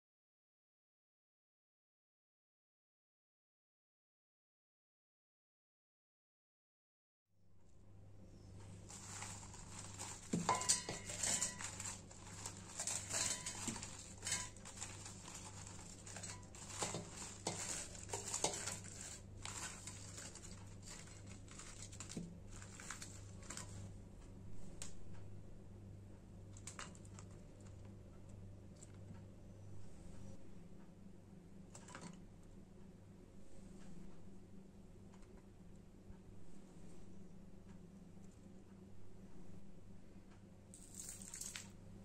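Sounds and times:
dried chillies crackling into grinder jar: 8.7 - 23.9, 40.8 - 41.7.

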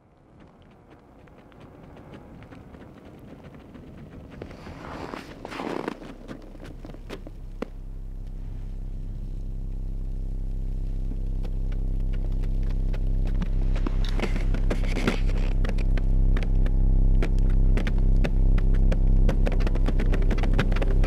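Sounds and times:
low droning hum: 0.0 - 21.0
rustling scrape: 4.4 - 7.2.

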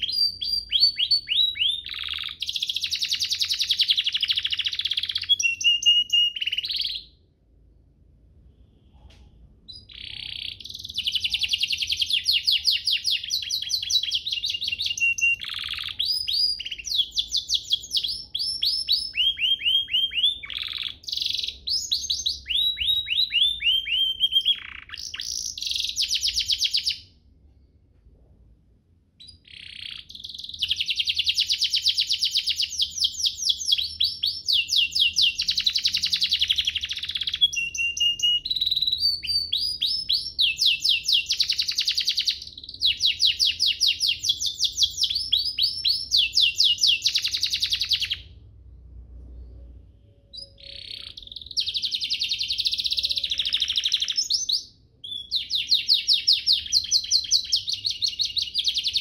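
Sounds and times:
canary singing fast trills: 0.0 - 7.3, 9.6 - 27.2, 29.2 - 48.5, 49.4 - 59.0.

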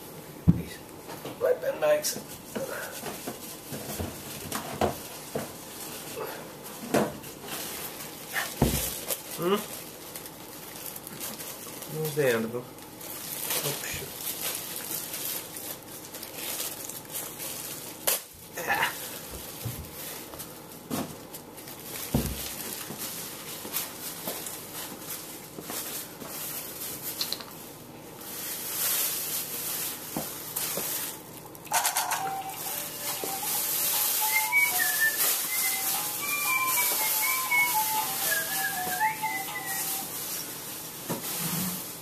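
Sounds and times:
baby toy tinkling melody: 32.0 - 40.0.

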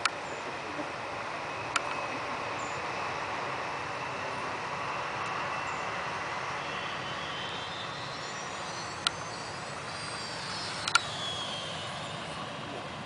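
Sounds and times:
faint motor whine: 0.0 - 13.0
model aircraft rushing noise: 0.0 - 13.0
sharp click: 10.8 - 11.1.

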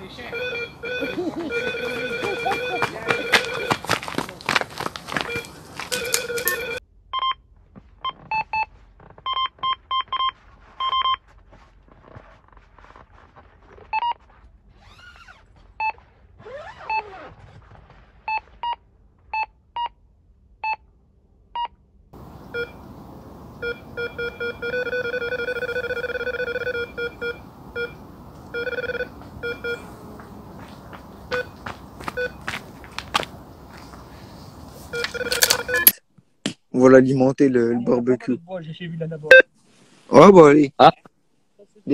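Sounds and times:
lower-pitched alarm beeping: 0.2 - 3.8, 22.4 - 29.9, 34.9 - 36.0
electronic bite alarm beeps: 0.3 - 3.7, 22.5 - 22.8, 23.6 - 29.8, 34.9 - 36.0.

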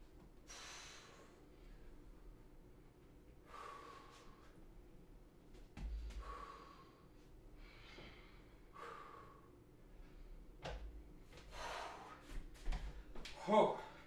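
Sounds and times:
heavy breathing: 3.4 - 4.6, 5.8 - 10.4, 11.4 - 14.0.

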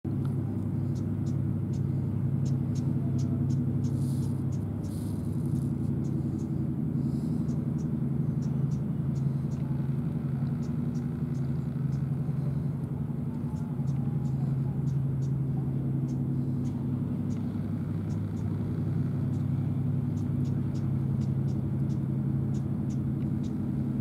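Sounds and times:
low mechanical hum: 0.0 - 24.0.

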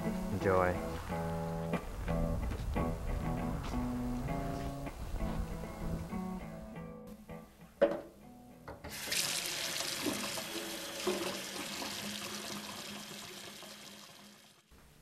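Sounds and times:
water pouring into a metal sink: 8.9 - 14.7.

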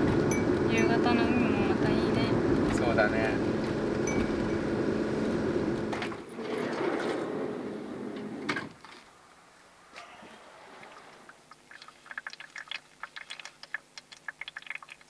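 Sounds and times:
van engine drone from inside: 0.0 - 6.3
quiet outdoor air: 0.0 - 15.0.

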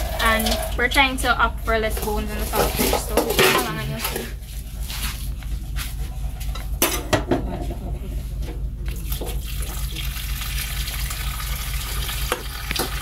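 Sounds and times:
tap water running into pot: 0.0 - 1.0, 8.9 - 13.0
pot and dishes clattering: 2.4 - 4.3, 6.6 - 7.9.

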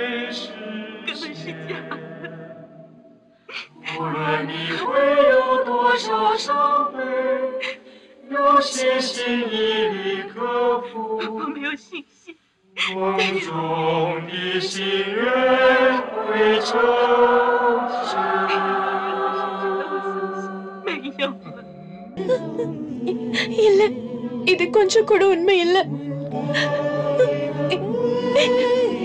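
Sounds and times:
wordless choir singing: 0.0 - 11.7, 12.8 - 29.0.

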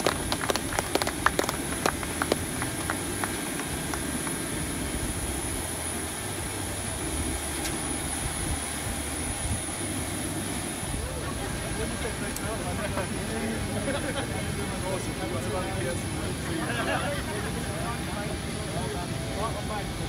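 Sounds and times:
handclaps: 0.0 - 4.4
airliner engine drone and whine: 0.0 - 20.0.

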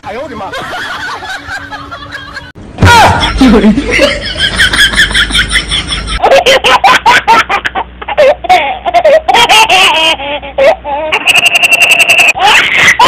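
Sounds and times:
high-pitched giggling: 3.2 - 13.0.

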